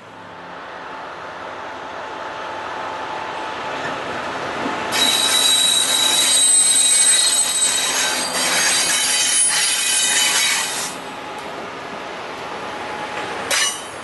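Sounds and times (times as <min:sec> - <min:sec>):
train wheels squealing: 0:04.9 - 0:11.1.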